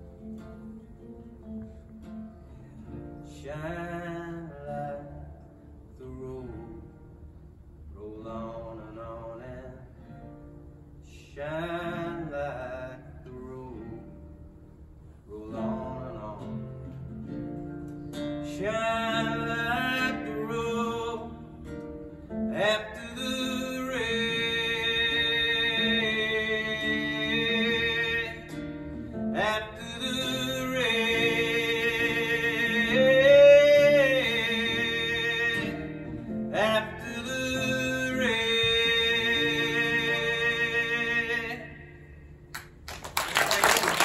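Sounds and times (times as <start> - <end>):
strummed acoustic guitar: 0.0 - 7.3, 8.0 - 42.8
man singing long notes: 22.5 - 28.6, 29.3 - 42.1.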